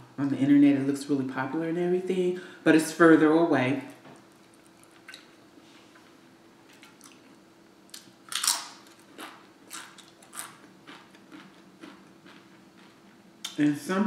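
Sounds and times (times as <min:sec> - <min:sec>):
chewing: 0:06.7 - 0:13.6.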